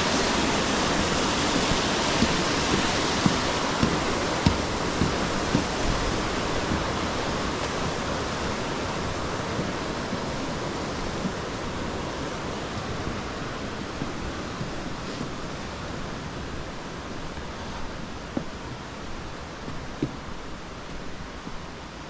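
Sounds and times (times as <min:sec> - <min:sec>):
steady rushing noise: 0:00.0 - 0:22.0
soft thumps: 0:01.2 - 0:08.0.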